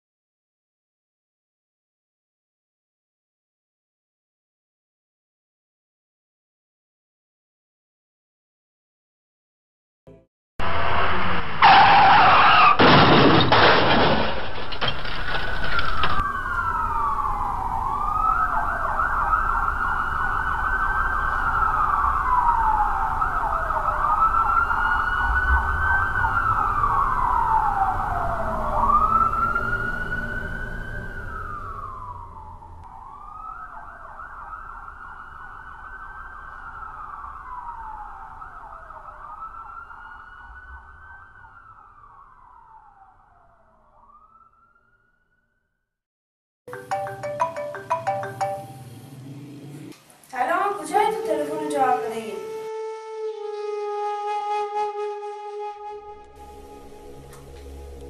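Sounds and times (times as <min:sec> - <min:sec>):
ambulance siren wailing: 0:15.9 - 0:45.3, 0:50.6 - 0:58.0.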